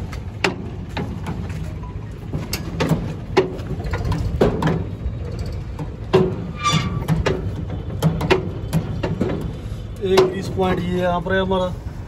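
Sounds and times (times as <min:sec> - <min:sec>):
metallic clicks and knocks: 0:00.0 - 0:10.9
high squeak: 0:06.4 - 0:07.1.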